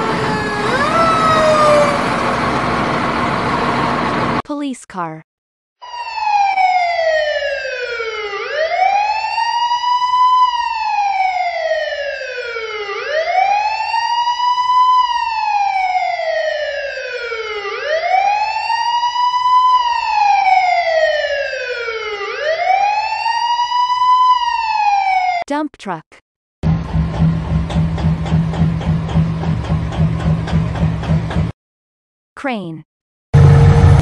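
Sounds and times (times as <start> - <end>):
police siren wailing: 0.0 - 4.4, 5.8 - 25.4.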